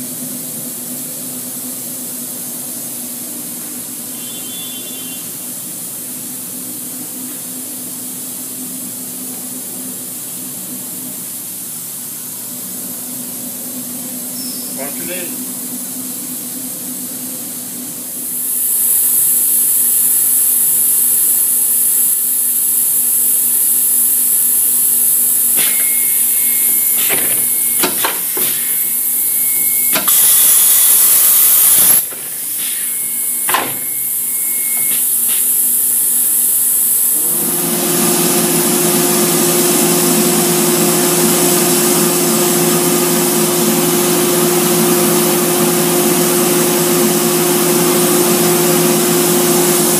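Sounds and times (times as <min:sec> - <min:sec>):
low machine hum: 0:00.0 - 0:49.9
router machine hiss: 0:18.2 - 0:49.9.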